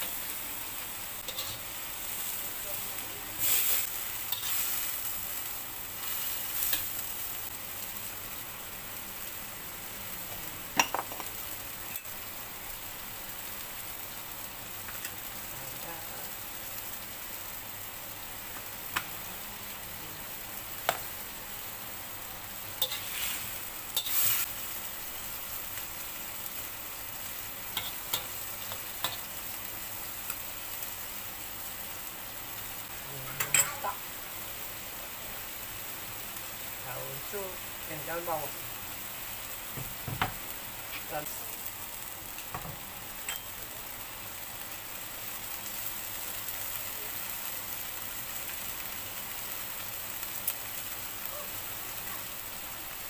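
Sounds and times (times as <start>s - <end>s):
vegetables sizzling in a wok: 0.0s - 53.0s
metal spatula scraping wok: 1.2s - 2.4s, 22.8s - 24.5s.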